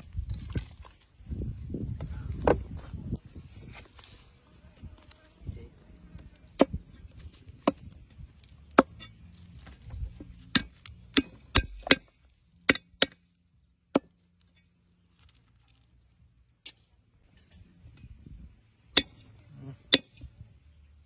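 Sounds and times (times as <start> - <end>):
cleaver chopping on wood: 6.5 - 6.9, 10.2 - 13.2.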